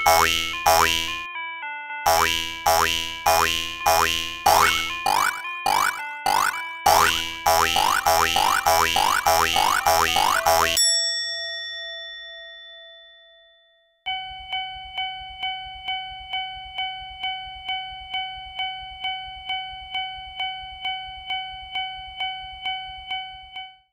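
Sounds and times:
bell-like tone ringing: 0:00.0 - 0:01.3, 0:02.1 - 0:13.3.

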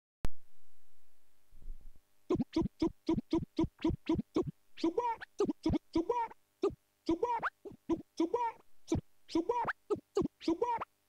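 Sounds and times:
vinyl scratching on turntable: 0:02.3 - 0:10.9.

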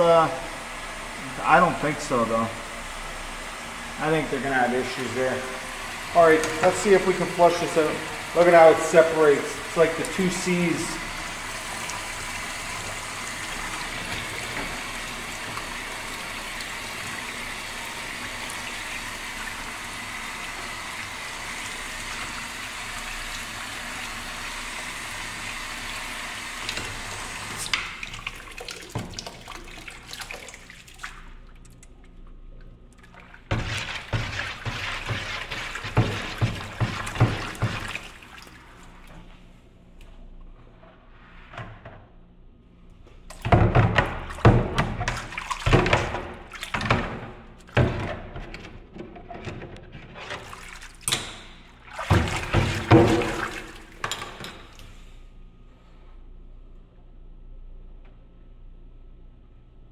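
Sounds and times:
tap running into sink: 0:26.6 - 0:30.1, 0:33.5 - 0:38.2, 0:43.3 - 0:48.7, 0:50.3 - 0:54.8.

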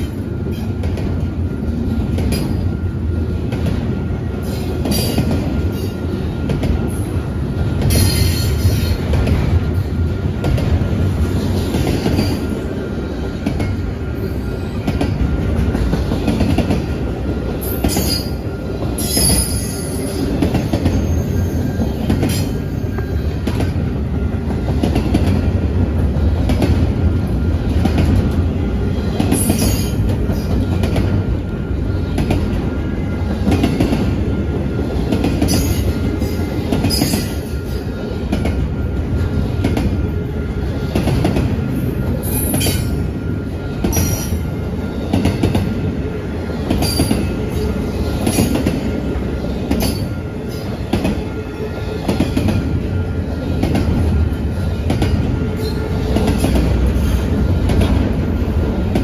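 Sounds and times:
train wheels rumbling on rails: 0:00.0 - 0:59.0
high wheel squeals: 0:17.6 - 0:23.4.

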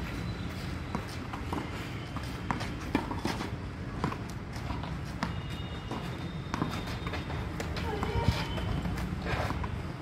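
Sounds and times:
footsteps on clay court: 0:00.0 - 0:10.0.

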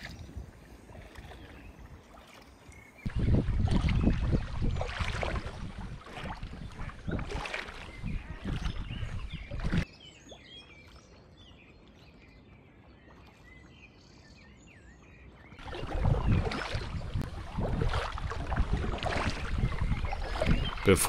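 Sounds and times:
kayak paddling: 0:00.0 - 0:14.9, 0:15.5 - 0:21.0
songbirds chirping: 0:00.0 - 0:21.0
wind rushing on microphone: 0:03.0 - 0:09.8, 0:15.6 - 0:21.0.

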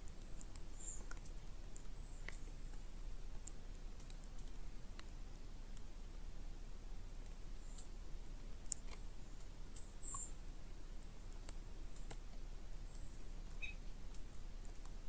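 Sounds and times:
small clicks and ticks: 0:00.0 - 0:06.0, 0:07.2 - 0:10.4, 0:11.2 - 0:15.0
faint steady hiss: 0:00.0 - 0:15.0.

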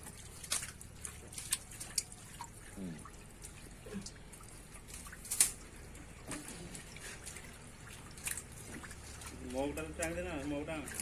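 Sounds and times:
hands splashing in shallow water: 0:00.0 - 0:02.8
water trickling and dripping: 0:00.0 - 0:11.0.

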